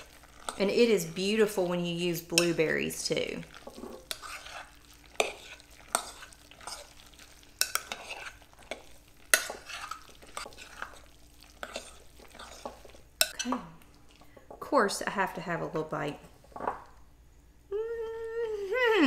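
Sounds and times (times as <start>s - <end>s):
spoon stirring wet salsa: 0.0s - 14.7s.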